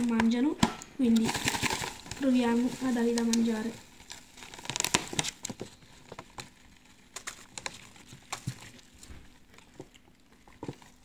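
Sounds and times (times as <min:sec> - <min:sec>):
crickets tapping on dry leaves: 0:01.1 - 0:05.6.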